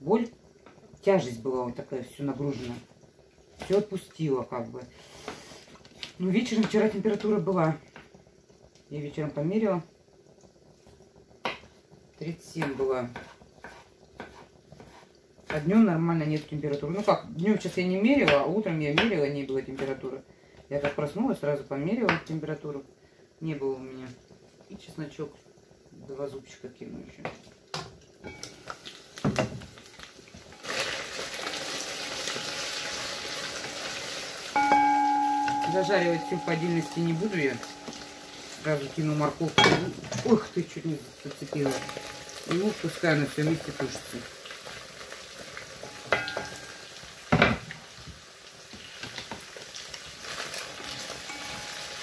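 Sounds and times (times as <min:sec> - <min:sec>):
food sizzling in hot oil: 0:00.0 - 0:52.0
wooden spatula stirring in pan: 0:10.8 - 0:15.8
wooden spatula stirring: 0:12.6 - 0:15.8, 0:34.6 - 0:43.9
glass pan lid knock: 0:34.6 - 0:38.1.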